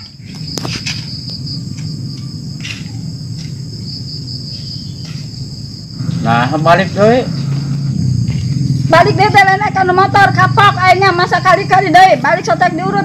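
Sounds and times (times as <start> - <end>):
crickets chirring: 0.0 - 13.0
low rumble: 1.2 - 10.0.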